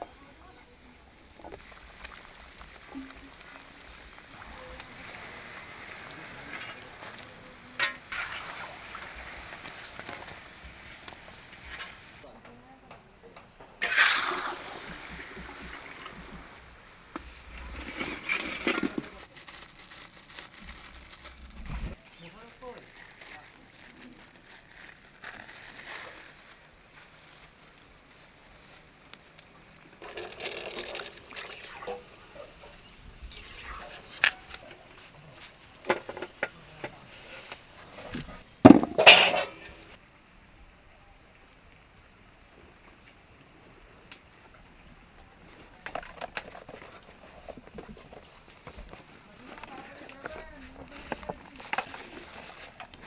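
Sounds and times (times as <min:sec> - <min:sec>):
oil sizzling and bubbling: 0:01.1 - 0:12.3, 0:13.8 - 0:19.4, 0:24.4 - 0:40.1
apple pieces clattering into pot: 0:38.6 - 0:39.7.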